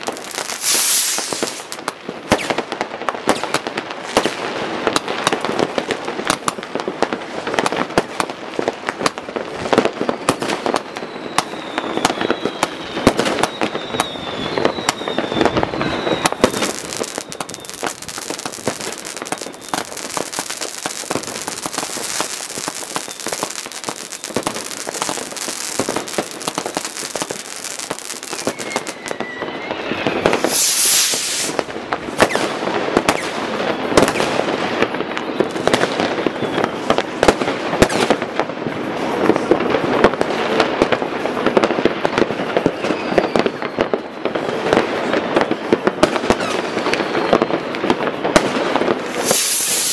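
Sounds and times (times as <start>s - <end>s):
faint firework whistles: 0.0s - 5.6s, 9.0s - 49.9s
firecracker crackle: 0.0s - 49.9s
fireworks popping and banging: 0.0s - 49.9s
loud rushing hiss: 0.6s - 1.7s, 30.3s - 31.6s, 49.1s - 49.9s.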